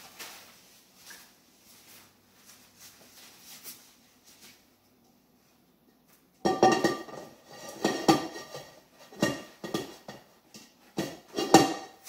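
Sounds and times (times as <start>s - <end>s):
metal pot clanking and ringing: 6.5s - 10.3s, 11.0s - 12.0s.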